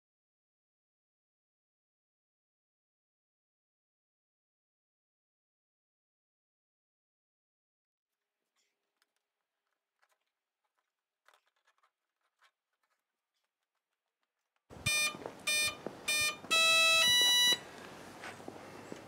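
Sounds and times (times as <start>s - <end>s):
electronic start-up beeps: 14.9s - 17.6s.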